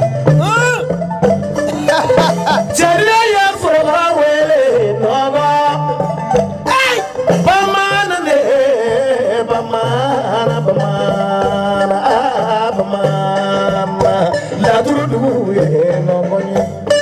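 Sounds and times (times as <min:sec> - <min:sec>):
low bass line: 0:00.0 - 0:03.1
instrumental accompaniment: 0:00.0 - 0:17.0
person singing into microphone: 0:01.7 - 0:17.0.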